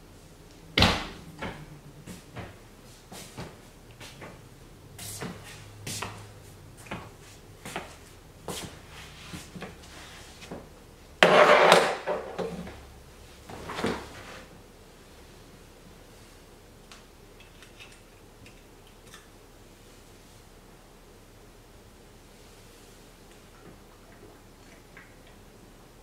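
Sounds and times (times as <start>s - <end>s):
footsteps in a room: 0.1s - 10.8s
objects clattering on tiled table: 11.2s - 12.8s.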